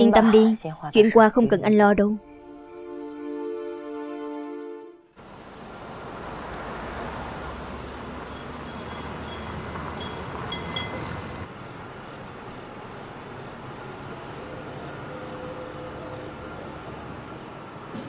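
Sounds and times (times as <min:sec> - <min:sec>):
streetcar rumbling on rails: 0:05.2 - 0:18.0
metallic dings: 0:08.3 - 0:11.2.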